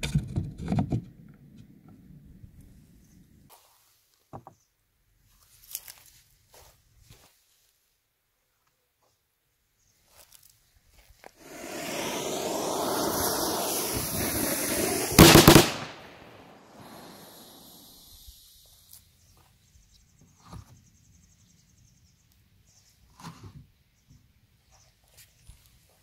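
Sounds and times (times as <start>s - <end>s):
fuse hissing and sputtering: 11.4s - 15.8s, 16.7s - 18.5s
cannon firing bang: 15.2s - 16.5s.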